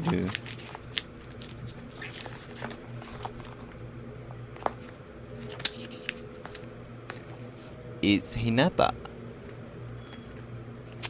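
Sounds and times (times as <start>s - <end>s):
paper pages rustling: 0.0s - 3.8s, 4.6s - 7.7s
steady low hum: 0.0s - 11.0s.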